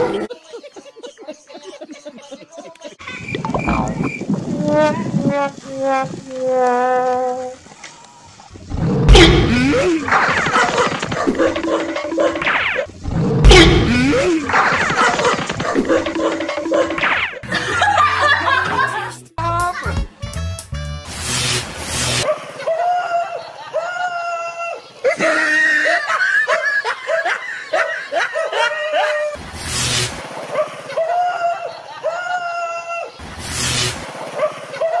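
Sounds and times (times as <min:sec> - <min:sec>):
person laughing: 0:13.5 - 0:19.2, 0:22.6 - 0:29.4
music: 0:17.4 - 0:21.6.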